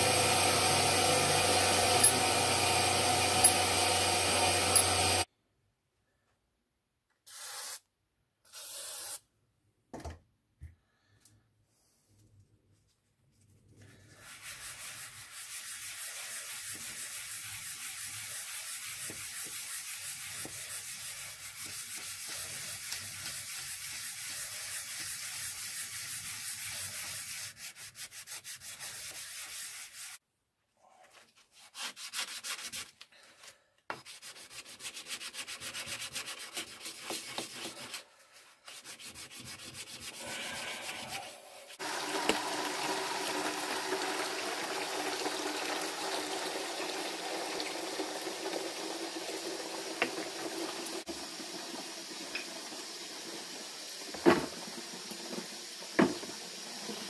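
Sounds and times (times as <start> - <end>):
hand sanding metal: 14.2 - 30.2, 34.0 - 38.0, 38.6 - 41.8
tap water running into bucket: 41.8 - 57.0.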